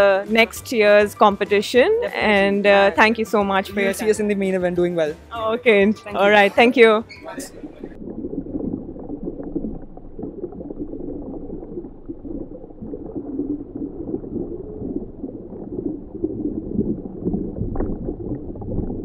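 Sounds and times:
muffled bubbling water: 7.1 - 19.0.

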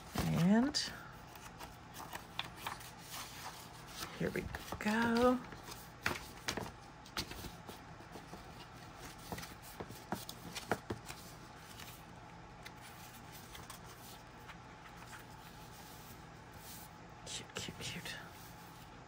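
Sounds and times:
book pages rustling and crackling: 0.0 - 16.9
faint rubbing of paper: 12.8 - 16.9.

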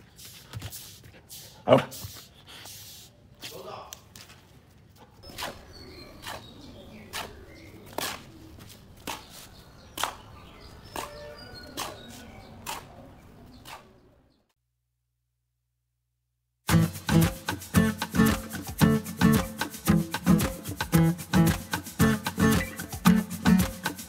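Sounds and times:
sand scraping on tiles: 0.0 - 3.7, 5.2 - 10.3, 10.9 - 14.0
faint bird chirps: 5.2 - 14.6.

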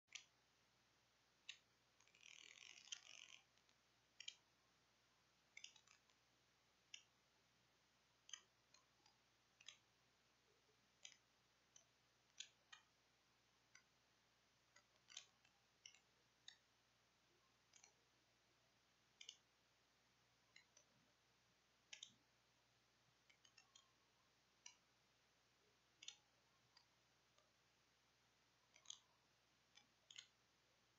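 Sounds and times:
faint sharp clicks: 21.9 - 22.2, 28.7 - 29.1, 29.7 - 30.4.

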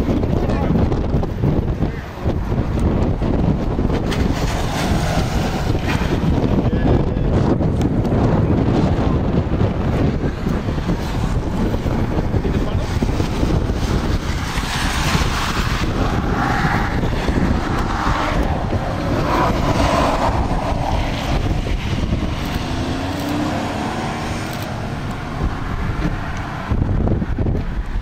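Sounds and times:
wind buffeting microphone: 0.0 - 28.0
cars driving past: 2.2 - 28.0.

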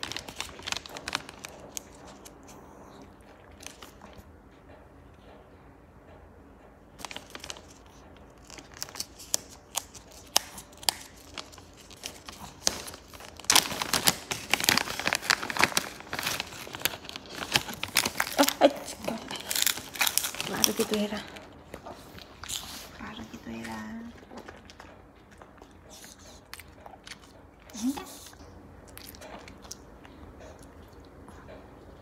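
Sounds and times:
plastic snack packet crinkling: 0.0 - 2.5, 3.5 - 4.2, 7.0 - 21.6, 22.2 - 25.5.

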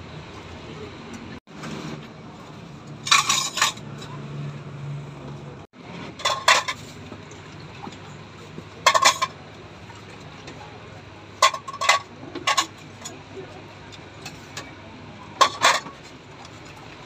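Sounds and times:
metal spoon clinking against bowls: 3.1 - 4.2, 8.8 - 9.4, 11.4 - 13.2.

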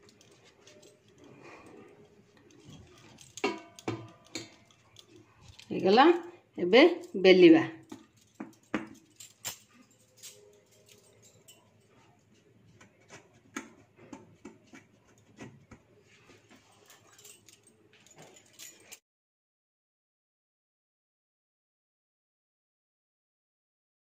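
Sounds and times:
bangles clinking: 0.0 - 19.0.

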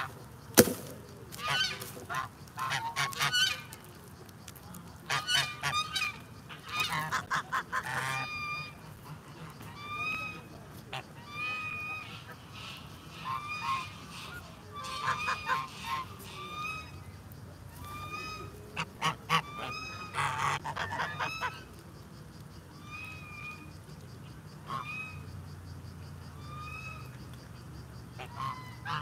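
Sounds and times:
geese honking: 1.3 - 4.0, 5.0 - 17.0, 17.7 - 21.7, 24.5 - 25.3, 28.1 - 29.0.

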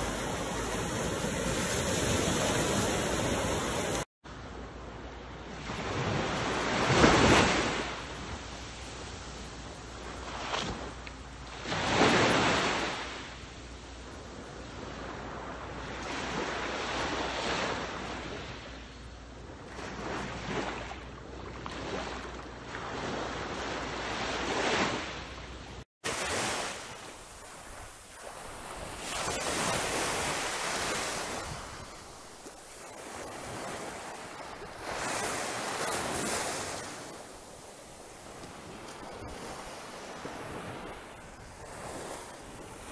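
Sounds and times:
small waves breaking on beach: 0.0 - 18.8, 19.5 - 42.9.

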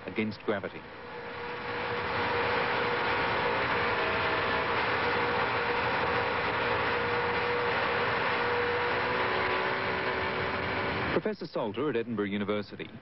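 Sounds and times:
model aircraft engine whine: 0.8 - 11.2.

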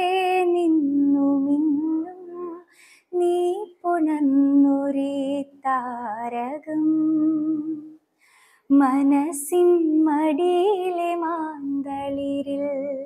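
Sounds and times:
woman singing a lullaby: 0.0 - 8.0, 8.7 - 13.0
singer breathing: 2.7 - 3.1, 8.1 - 8.7.

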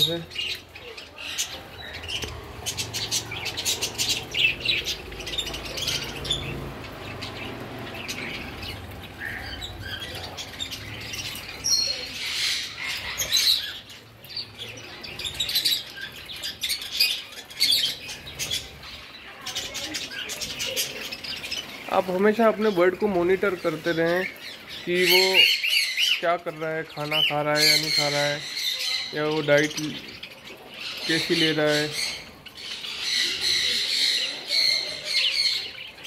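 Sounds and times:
parrots squawking: 0.0 - 14.0.

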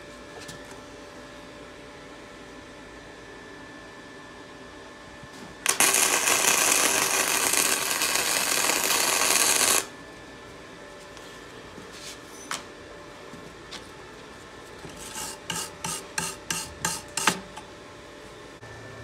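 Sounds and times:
welding arc: 5.6 - 9.9.

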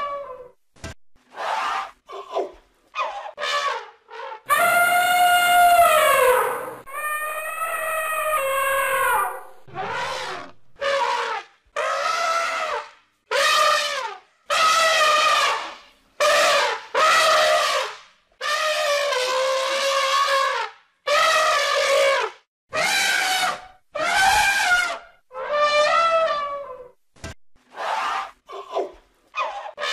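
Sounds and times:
elephant trumpeting: 3.0 - 15.6, 22.8 - 26.8.

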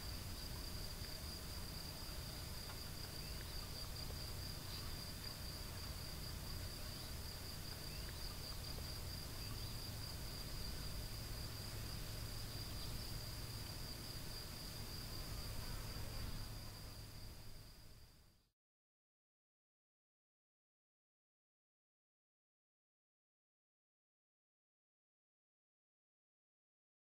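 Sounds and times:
low steady rumble: 0.0 - 18.4.

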